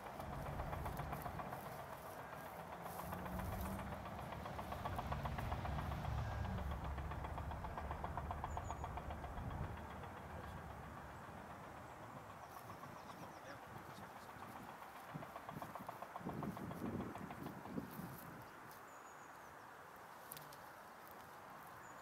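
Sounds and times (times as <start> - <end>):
distant diesel engine rumbling: 0.0 - 18.7.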